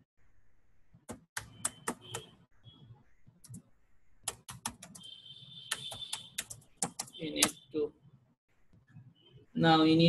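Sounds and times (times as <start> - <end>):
keyboard typing: 1.0 - 2.5, 3.3 - 7.6.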